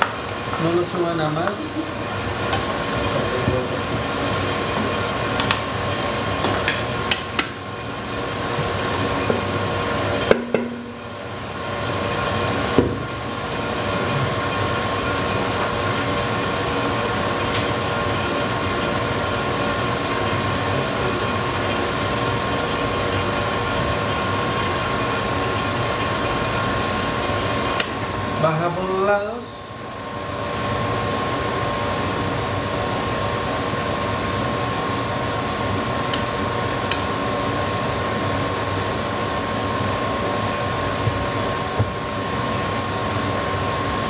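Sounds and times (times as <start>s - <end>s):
stand mixer motor humming: 0.0s - 28.3s.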